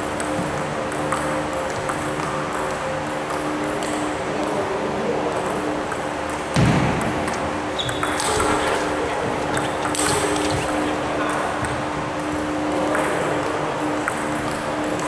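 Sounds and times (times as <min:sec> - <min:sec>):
heavy low thump: 0:06.6 - 0:07.3.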